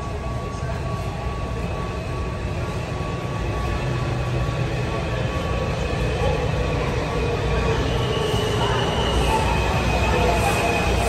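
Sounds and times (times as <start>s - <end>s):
train rumbling in tunnel: 0.0s - 11.0s
train whine: 0.0s - 11.0s.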